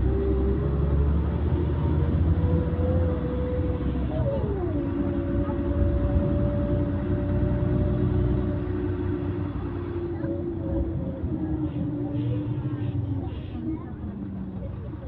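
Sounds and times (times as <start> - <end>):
engine whine changing pitch: 0.0 - 11.4
bus engine rumble: 0.0 - 15.0.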